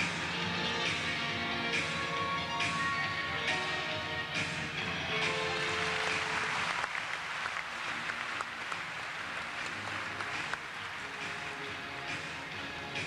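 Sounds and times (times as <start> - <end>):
audience applauding: 5.5 - 11.8.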